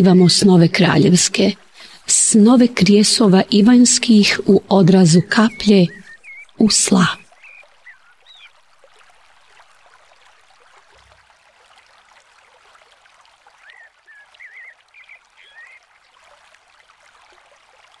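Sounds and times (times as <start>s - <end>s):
flowing water: 0.0s - 18.0s
bird chirping: 4.8s - 8.5s, 13.7s - 15.8s.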